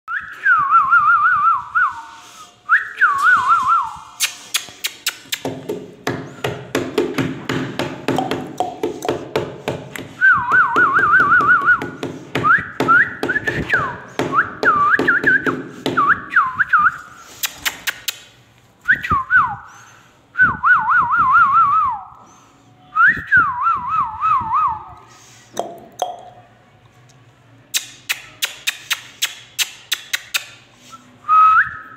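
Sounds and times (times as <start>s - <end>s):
bird clicking and chatter: 4.2s - 5.5s, 17.3s - 18.3s, 27.7s - 30.6s.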